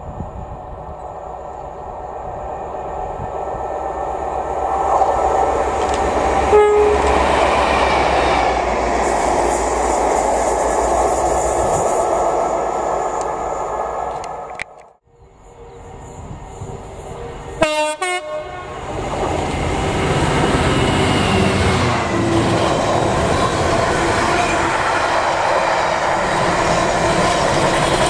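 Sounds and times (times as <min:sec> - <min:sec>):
wheel-on-rail noise: 0:04.2 - 0:14.9
train horn blast: 0:06.4 - 0:07.2, 0:17.6 - 0:18.9.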